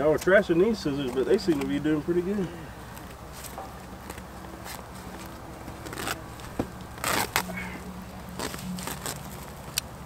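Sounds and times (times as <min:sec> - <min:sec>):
crunchy rustling and scraping: 0:00.0 - 0:10.0
scissors cutting burlap: 0:01.0 - 0:01.9, 0:03.0 - 0:10.0.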